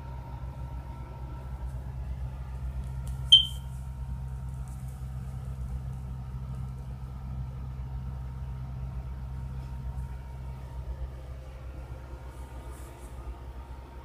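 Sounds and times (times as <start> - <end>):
low room hum: 0.0 - 14.0
high-pitched ping: 3.3 - 3.6.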